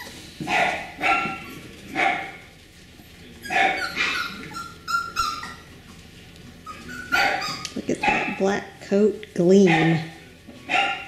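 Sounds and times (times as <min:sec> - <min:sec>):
puppy barking: 0:00.4 - 0:02.4, 0:03.4 - 0:05.7, 0:06.7 - 0:08.4, 0:09.6 - 0:10.1, 0:10.7 - 0:11.0.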